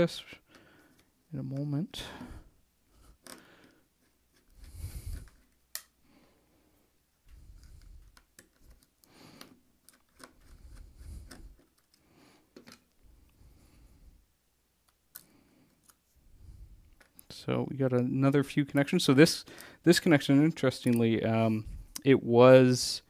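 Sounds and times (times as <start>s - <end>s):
plastic and metal parts clicking: 7.6s - 13.0s.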